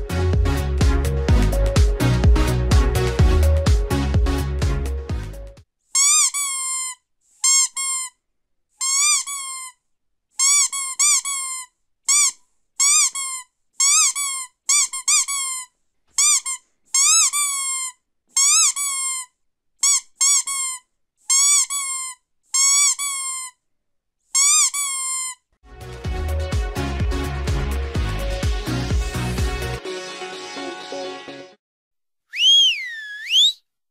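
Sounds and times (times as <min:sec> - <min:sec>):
squeaky dog toy squeaking: 0:06.0 - 0:08.2, 0:08.8 - 0:09.8, 0:10.4 - 0:23.6, 0:24.3 - 0:25.4.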